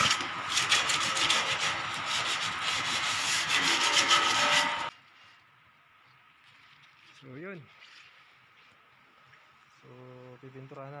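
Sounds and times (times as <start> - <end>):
sandpaper rubbing on steel tube: 0.0 - 4.9.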